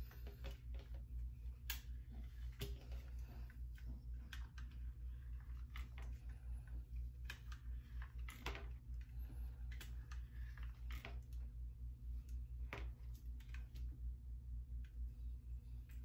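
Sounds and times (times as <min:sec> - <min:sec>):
flat iron clicking and rustling hair: 0:00.0 - 0:11.6
steady low hum: 0:00.0 - 0:16.0.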